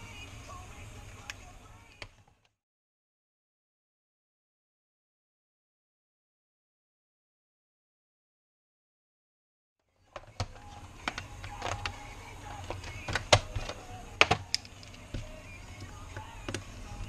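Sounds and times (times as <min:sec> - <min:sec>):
steady low hum: 0:00.0 - 0:02.3, 0:10.0 - 0:17.0
handling clicks and taps: 0:10.2 - 0:12.0, 0:12.6 - 0:16.7.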